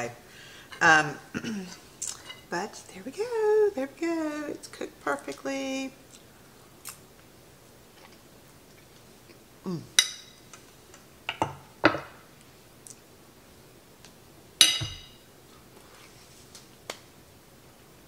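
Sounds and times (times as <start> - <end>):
fork clinking on a plate: 14.6 - 15.2.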